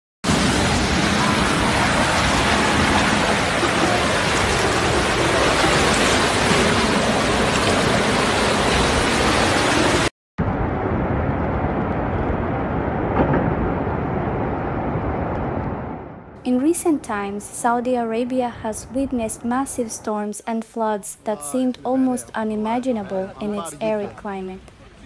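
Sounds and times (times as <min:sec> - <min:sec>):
floodwater rushing: 0:00.3 - 0:10.1.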